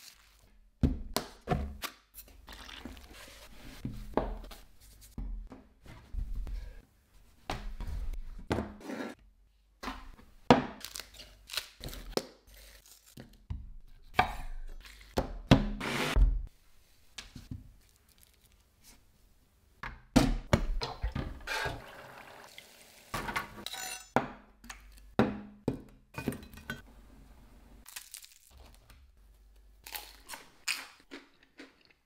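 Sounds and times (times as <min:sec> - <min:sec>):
metal dishes clinking on wood: 0:23.2 - 0:24.2.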